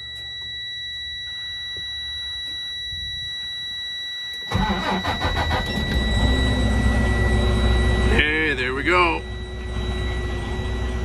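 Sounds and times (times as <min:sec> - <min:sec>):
high-pitched warning tone: 0:00.0 - 0:11.0
diesel engine cranking and running: 0:04.5 - 0:11.0.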